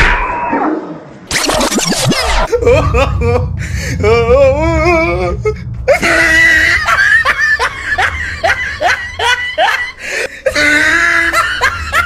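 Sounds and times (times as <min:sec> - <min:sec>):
laughter: 0:02.5 - 0:03.5, 0:06.0 - 0:12.0.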